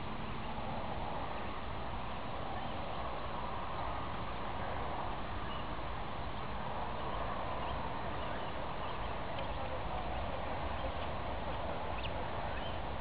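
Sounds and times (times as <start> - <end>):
waterbirds calling: 2.0 - 13.0.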